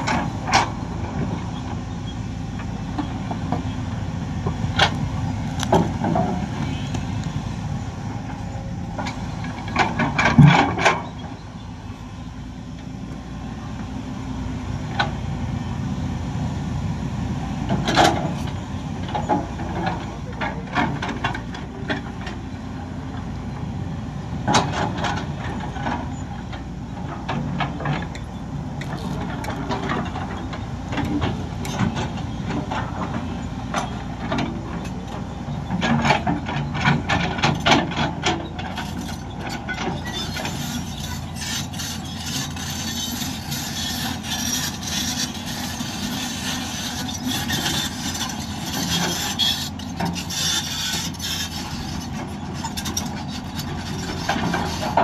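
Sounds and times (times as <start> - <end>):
diesel machinery rumbling: 0.0 - 55.0
metal clanks and knocks: 8.9 - 11.3, 29.2 - 45.3.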